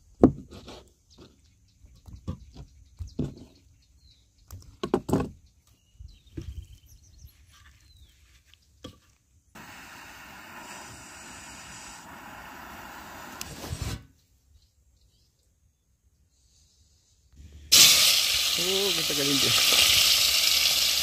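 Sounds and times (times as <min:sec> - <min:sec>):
steady rushing hiss: 0:09.6 - 0:14.1, 0:17.4 - 0:21.0.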